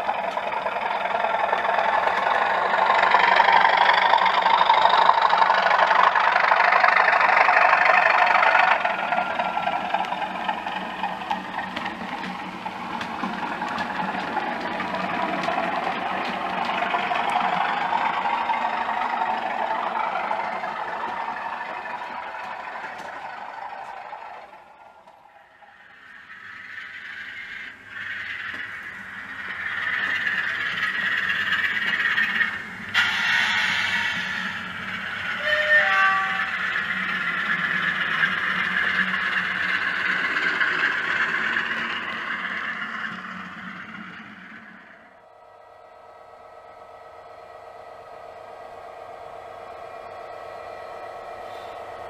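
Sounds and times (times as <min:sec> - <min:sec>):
wheels clattering on track: 0:00.0 - 0:45.2
model train engine sound: 0:00.0 - 0:52.0
diesel engine sound from small speaker: 0:36.1 - 0:52.0.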